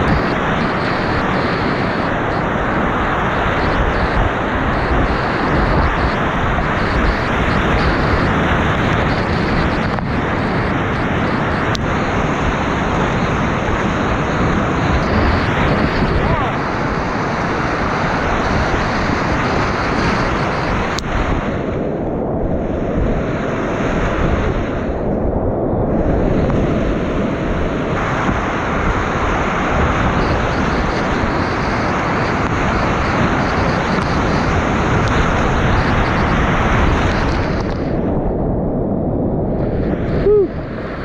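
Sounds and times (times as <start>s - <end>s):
whitewater rapids rushing: 0.0s - 21.7s.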